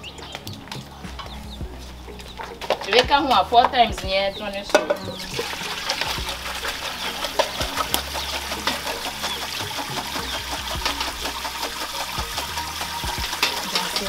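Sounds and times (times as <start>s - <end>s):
liquid pouring through a sieve: 5.3s - 14.0s.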